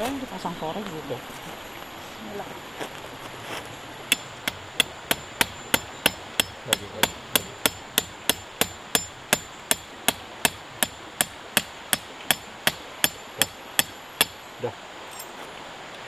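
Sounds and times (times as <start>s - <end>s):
hammer blows: 4.1s - 14.4s.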